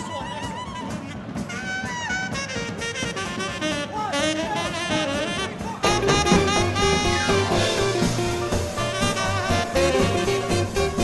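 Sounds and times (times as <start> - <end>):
swing band playing live: 0.0 - 11.0
tenor saxophone melody: 0.0 - 11.0
heavy bass: 5.4 - 11.0.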